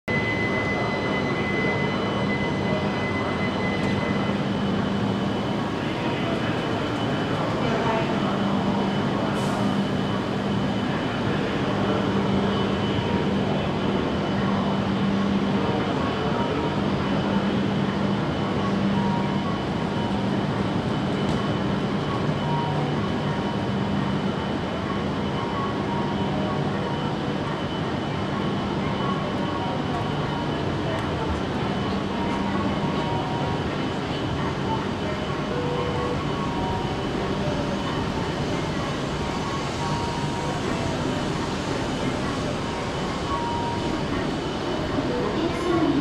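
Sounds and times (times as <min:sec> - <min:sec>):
high steady tone: 0:00.1 - 0:46.0
train machine hum and fan rush: 0:00.1 - 0:46.0.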